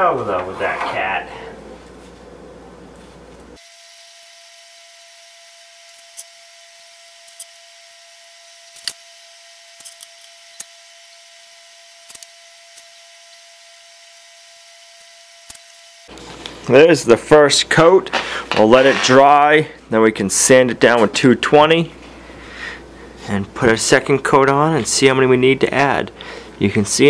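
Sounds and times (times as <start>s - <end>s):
faint hum: 0.0s - 12.9s.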